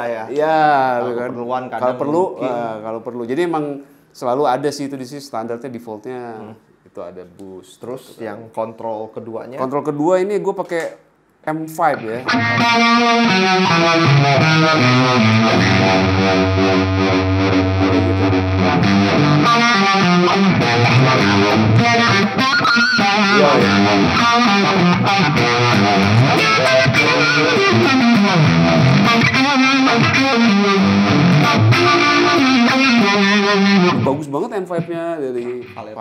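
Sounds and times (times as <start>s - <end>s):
distorted electric guitar lead: 12.0s - 34.2s.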